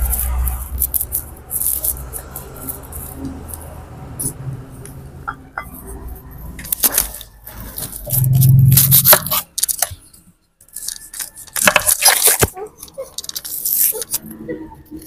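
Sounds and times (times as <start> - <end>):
onion skins tearing: 0.0 - 3.7, 6.6 - 10.0, 10.7 - 14.2
loud low rumble: 8.0 - 9.3.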